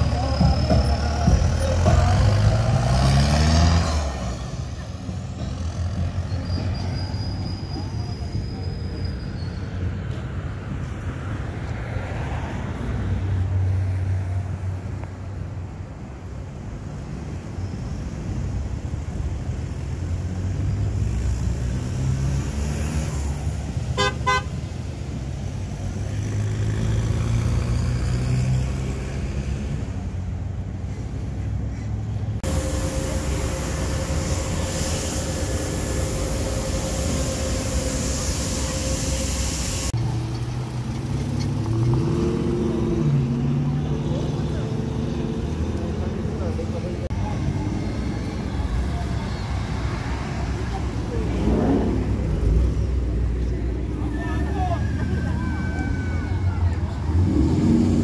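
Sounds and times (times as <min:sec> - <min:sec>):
cars and trucks driving past: 0:00.0 - 0:58.0
vehicle horn short honks: 0:24.0 - 0:24.6.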